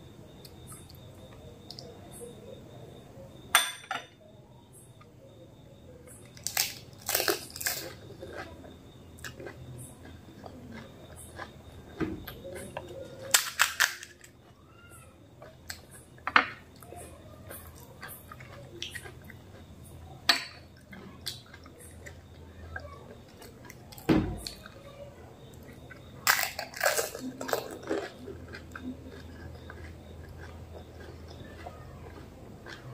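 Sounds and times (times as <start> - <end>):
crunching and chewing: 0.0 - 3.5, 4.4 - 32.9
crisp shells cracking: 6.4 - 8.0, 13.3 - 14.4, 26.3 - 28.2.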